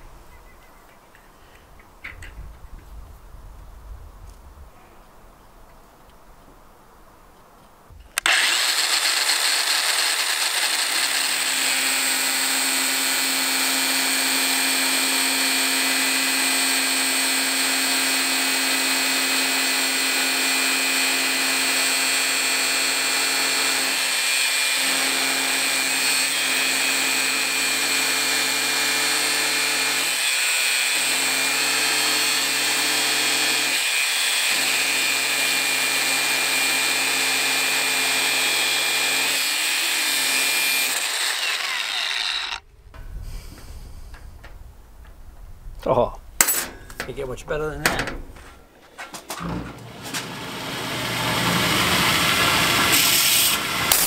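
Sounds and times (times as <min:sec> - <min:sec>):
angle grinder cutting steel: 0:08.2 - 0:42.7, 0:49.8 - 0:54.0.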